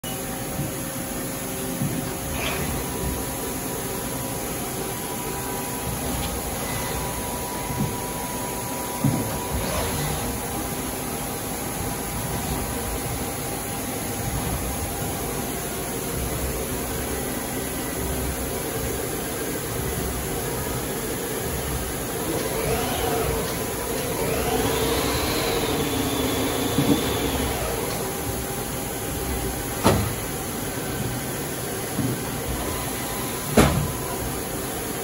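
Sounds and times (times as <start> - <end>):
lathe machine hum: 19.3 - 35.0
spindle drive whine: 21.6 - 34.9.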